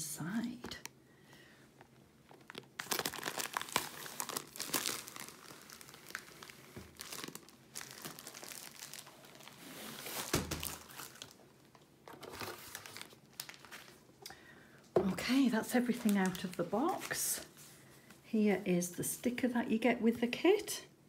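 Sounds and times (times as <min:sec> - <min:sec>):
plastic and cardboard crinkling: 0:01.8 - 0:14.1, 0:14.9 - 0:17.7.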